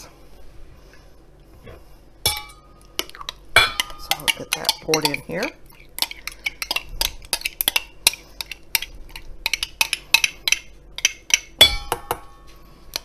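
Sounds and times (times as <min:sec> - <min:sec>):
metal utensil scraping in jar: 0:03.8 - 0:05.4.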